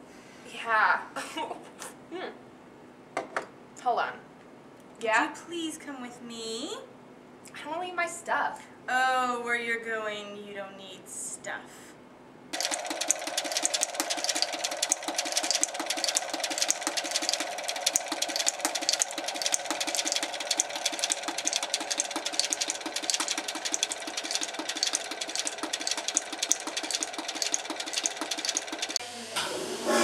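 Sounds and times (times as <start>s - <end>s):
machine knocking rhythmically: 12.6s - 29.0s.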